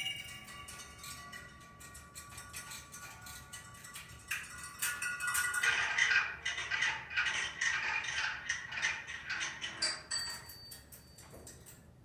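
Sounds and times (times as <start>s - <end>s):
typewriter bell ring: 0.0s - 5.6s, 9.8s - 11.7s.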